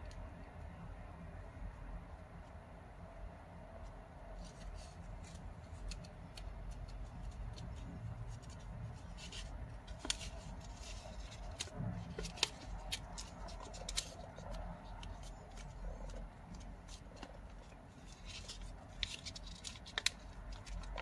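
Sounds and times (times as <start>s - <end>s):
paper crinkling: 4.4s - 21.0s.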